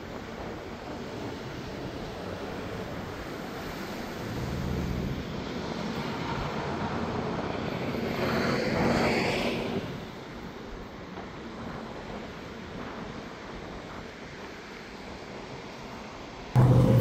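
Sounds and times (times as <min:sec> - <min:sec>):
highway traffic passing: 0:02.6 - 0:10.2, 0:16.6 - 0:17.0.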